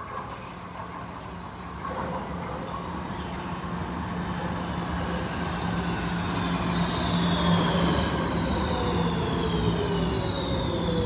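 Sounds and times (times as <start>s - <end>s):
train running noise: 0.0s - 11.0s
train motor whine: 3.6s - 11.0s.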